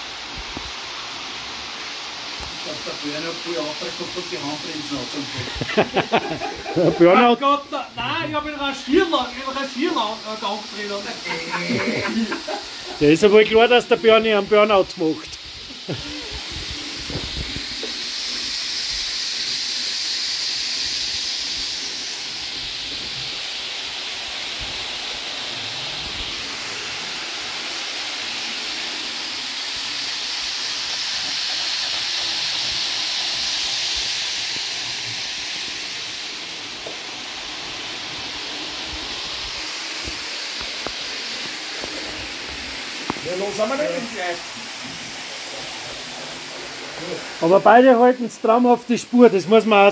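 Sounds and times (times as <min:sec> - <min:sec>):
model train wheels on rails: 0:16.4 - 0:49.9.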